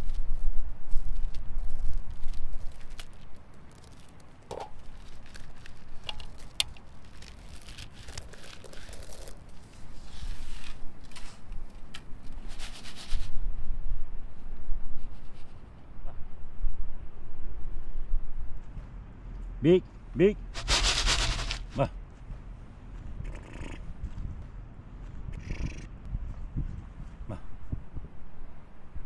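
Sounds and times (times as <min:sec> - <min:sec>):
corn kernels dropping into metal basin: 0:20.6 - 0:21.8.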